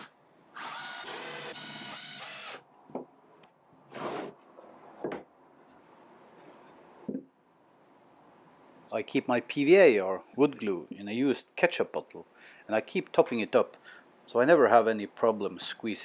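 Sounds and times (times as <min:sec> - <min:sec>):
cordless drill driving screw: 0:00.0 - 0:02.6.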